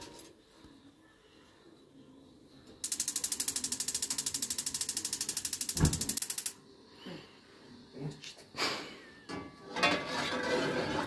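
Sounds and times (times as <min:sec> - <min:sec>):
gas hob spark igniter clicking: 0:02.8 - 0:06.6.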